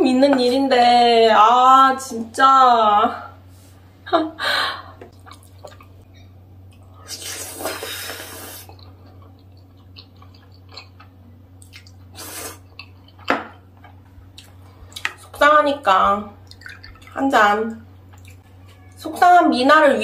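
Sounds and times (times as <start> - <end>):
wet chewing: 5.1 - 13.3, 18.1 - 18.4
person slurping noodles: 7.1 - 8.8.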